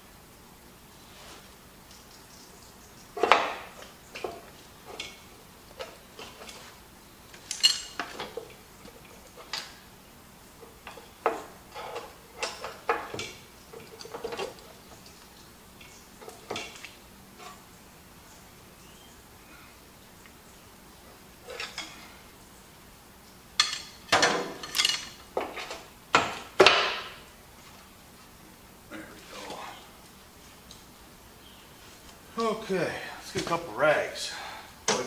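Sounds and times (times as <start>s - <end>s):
tools clinking on steel: 7.4s - 8.4s, 23.6s - 25.2s.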